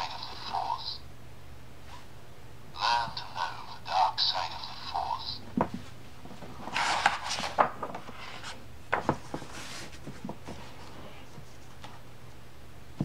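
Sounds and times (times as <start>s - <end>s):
paper page rustling: 6.6s - 12.0s.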